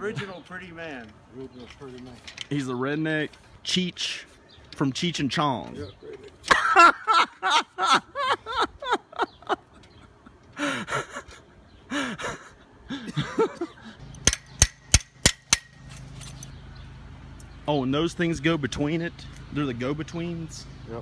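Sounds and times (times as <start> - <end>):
sharp clicks: 14.1 - 16.5.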